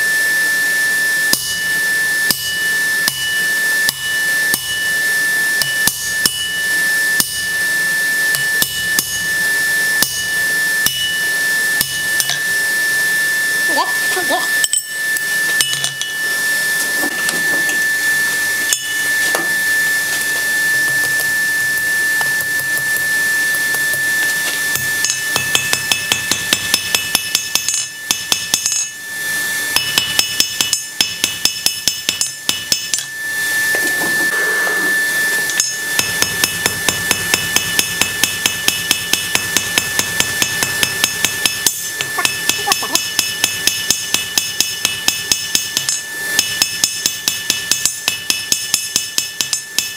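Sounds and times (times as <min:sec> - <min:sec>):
hammer striking steel on anvil: 0:01.3 - 0:05.0, 0:05.6 - 0:07.6, 0:08.3 - 0:09.3, 0:10.0 - 0:12.5, 0:14.6 - 0:16.2, 0:18.7 - 0:19.6, 0:20.9 - 0:29.0, 0:29.7 - 0:33.2, 0:35.5 - 0:49.9
steady high tone: 0:02.3 - 0:31.0, 0:31.6 - 0:38.6, 0:39.8 - 0:44.2.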